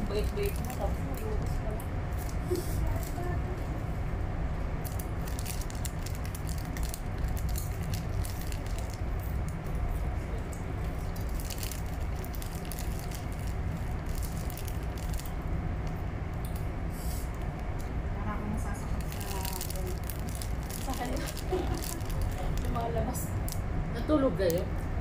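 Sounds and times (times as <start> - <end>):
plastic snack bag crinkling: 0.0 - 1.4, 4.8 - 9.3, 10.8 - 15.9, 18.9 - 23.6
low hum of train carriage: 0.0 - 25.0.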